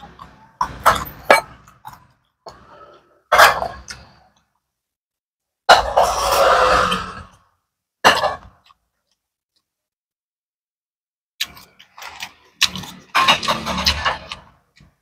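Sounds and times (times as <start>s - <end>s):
person chewing: 11.4s - 15.0s.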